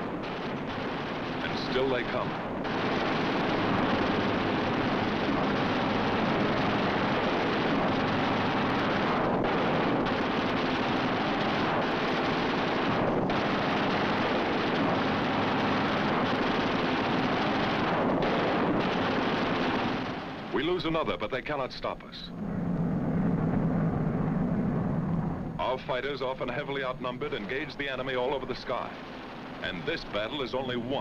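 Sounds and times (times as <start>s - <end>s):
machine-gun fire: 0.0s - 21.1s
warplane engines: 0.0s - 31.0s.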